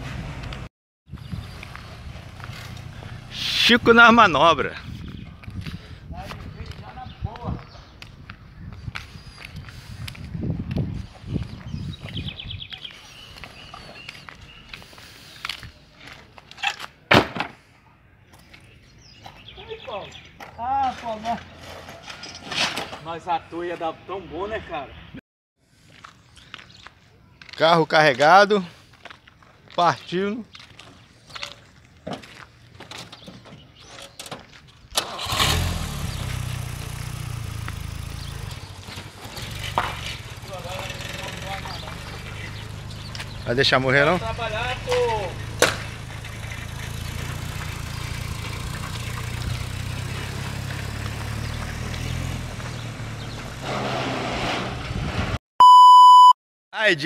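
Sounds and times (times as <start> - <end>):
trike engine starting and idling: 34.9 - 54.0.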